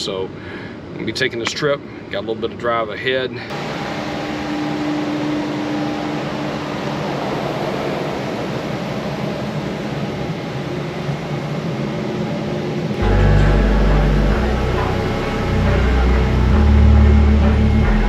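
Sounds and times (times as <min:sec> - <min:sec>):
air-conditioning fan humming: 0:00.0 - 0:18.0
faint tone: 0:13.0 - 0:18.0.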